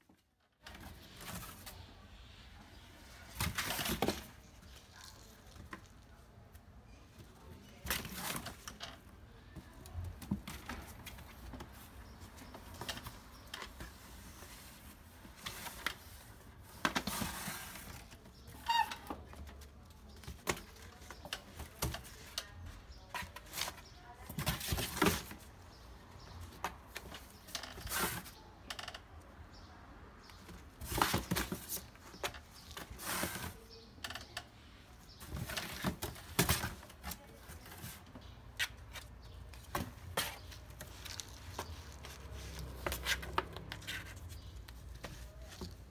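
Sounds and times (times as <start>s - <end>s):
kitten claws scratching cardboard: 35.2s - 45.9s.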